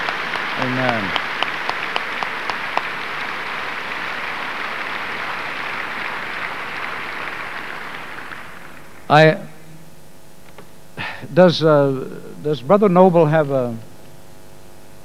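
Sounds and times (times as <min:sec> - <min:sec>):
sharp individual claps: 0:00.0 - 0:09.0
audience applauding: 0:00.0 - 0:09.2.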